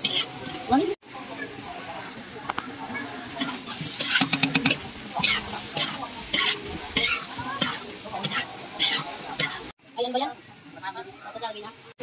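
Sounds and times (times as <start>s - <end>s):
metal spatula scraping wok: 0.0s - 1.0s, 2.9s - 9.7s
frying sizzle: 0.0s - 12.0s.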